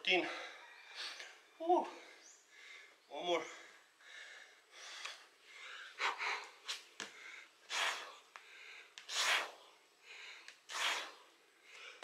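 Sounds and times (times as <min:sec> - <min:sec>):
man breathing hard: 0:00.2 - 0:12.0.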